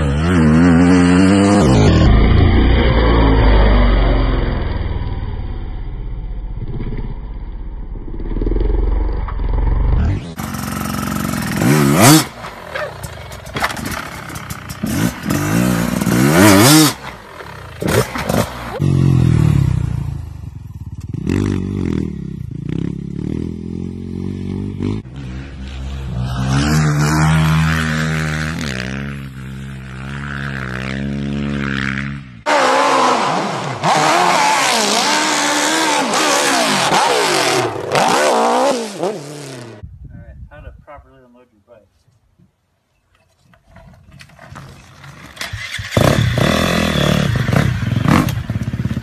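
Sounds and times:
dirt bike engines revving: 0:08.4 - 0:20.2, 0:21.0 - 0:39.8.

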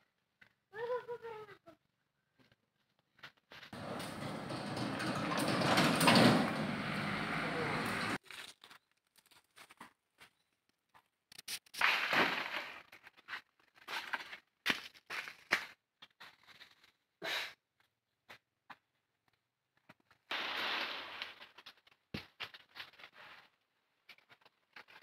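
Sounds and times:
dry leaves and branches rustling: 0:06.7 - 0:09.8.

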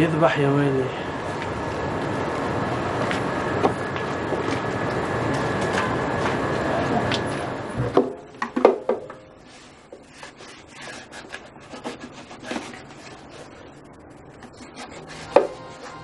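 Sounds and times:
hands tapping and rubbing wooden violin: 0:14.4 - 0:16.0.

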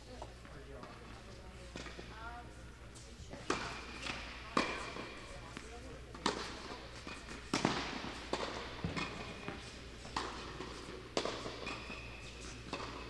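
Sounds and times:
tennis balls struck and bouncing: 0:03.3 - 0:13.0.

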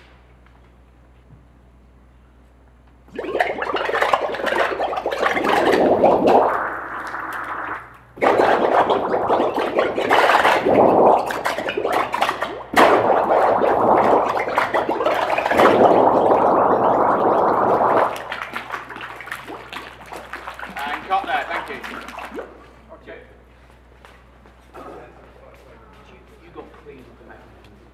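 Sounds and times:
air bubbling through thick liquid: 0:03.1 - 0:22.7.

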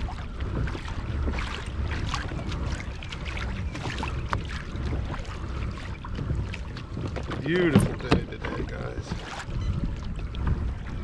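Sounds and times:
water lapping against kayak hull: 0:00.0 - 0:11.0
wind rumble on microphone: 0:00.0 - 0:11.0.

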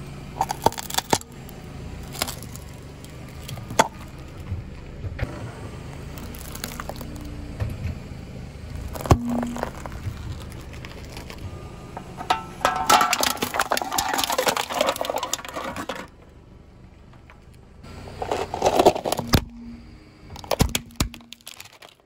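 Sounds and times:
tyre crushing objects on asphalt: 0:00.4 - 0:01.4, 0:02.0 - 0:04.6, 0:06.1 - 0:07.3, 0:08.8 - 0:16.4, 0:17.2 - 0:22.0.

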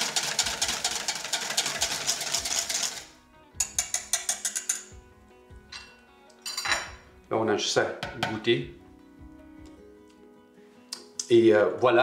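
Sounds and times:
whisk clicking in metal bowl: 0:00.0 - 0:04.9.

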